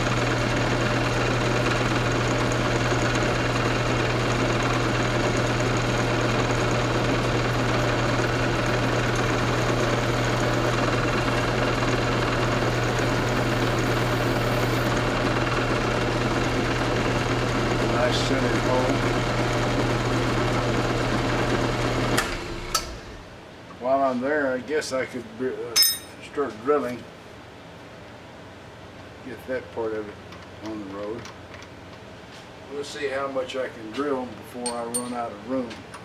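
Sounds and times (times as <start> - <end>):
end mill cutting metal: 0.0 - 23.0
mill motor humming: 0.0 - 23.4.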